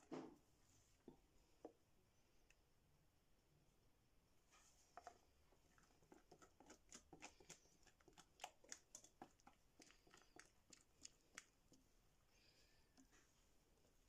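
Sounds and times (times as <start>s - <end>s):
whisk scraping glass bowl: 5.7s - 11.6s.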